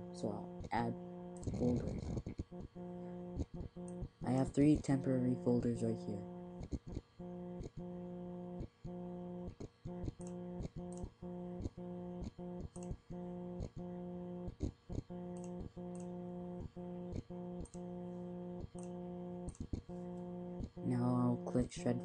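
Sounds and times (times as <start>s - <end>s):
low electrical buzz: 0.0s - 22.0s
sharp clicks: 9.5s - 13.0s, 14.5s - 16.2s, 17.1s - 17.8s, 18.7s - 20.8s.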